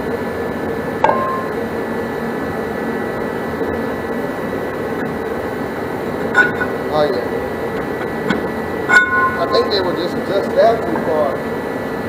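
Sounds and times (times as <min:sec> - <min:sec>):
fan-like whir: 0:00.0 - 0:12.0
metallic clink and ring: 0:06.4 - 0:06.7, 0:08.9 - 0:09.7.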